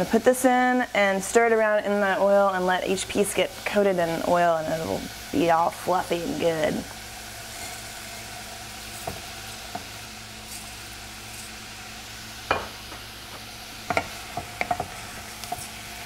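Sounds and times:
rice and onion sizzling in a pan: 0:00.0 - 0:16.0
wooden spoon scraping a pan: 0:07.4 - 0:11.6, 0:13.9 - 0:15.8.

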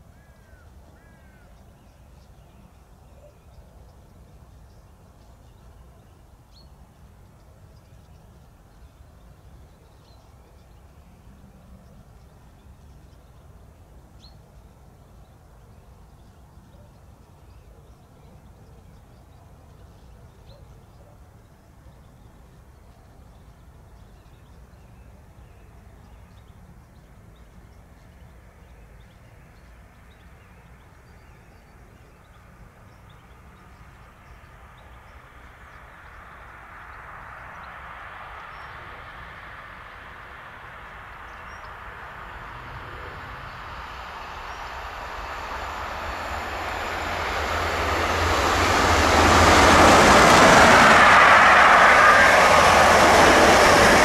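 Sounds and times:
train passing: 0:32.7 - 0:54.0
wheels rumbling on rail: 0:40.1 - 0:54.0.

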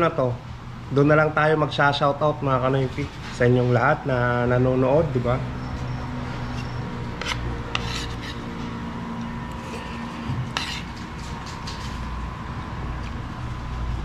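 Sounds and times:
steady low hum: 0:00.0 - 0:14.0
cutlery scraping on a plate: 0:05.7 - 0:08.8, 0:09.5 - 0:12.1.

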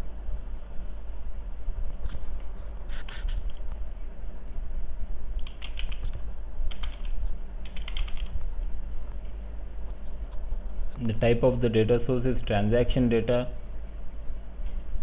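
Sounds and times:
steady low hum: 0:00.0 - 0:15.0
computer keyboard typing: 0:05.4 - 0:08.4.

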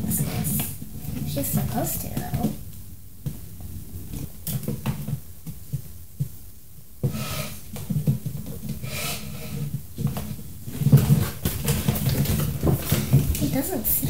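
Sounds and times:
low uneven rumble: 0:00.0 - 0:14.0
toys bumping and rubbing on table: 0:07.0 - 0:13.8.

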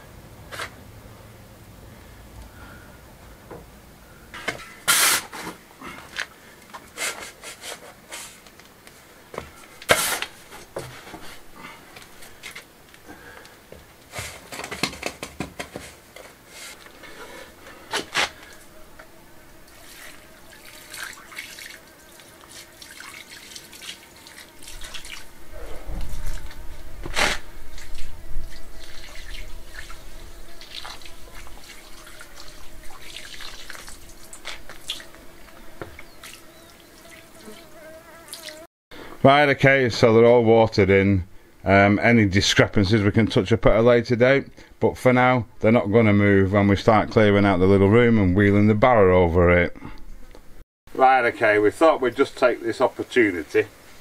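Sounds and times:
trowel scraping mortar: 0:04.7 - 0:05.6, 0:09.9 - 0:11.4
watering can pouring water: 0:19.7 - 0:25.3, 0:27.7 - 0:35.1.

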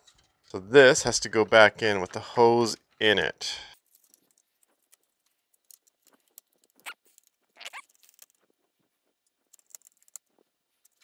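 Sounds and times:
plastic parts clicking and scraping: 0:03.8 - 0:11.0.

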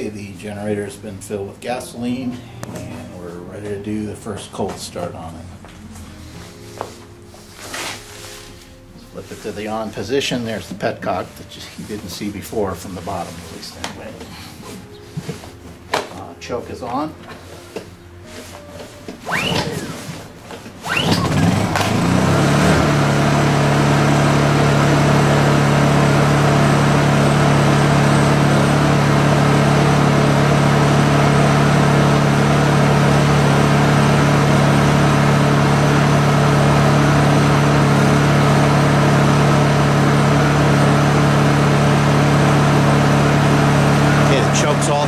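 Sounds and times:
generator engine running: 0:00.0 - 0:18.0, 0:18.8 - 0:45.0
recoil cord whirring: 0:17.3 - 0:45.0.

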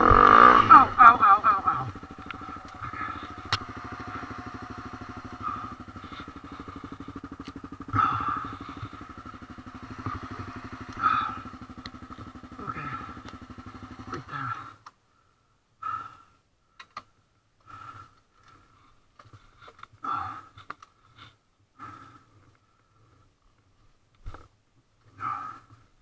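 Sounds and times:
motorcycle engine idling: 0:00.0 - 0:14.8.

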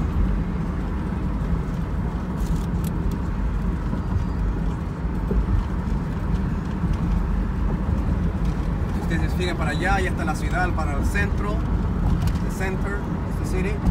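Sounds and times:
car road and engine noise: 0:00.0 - 0:13.9.

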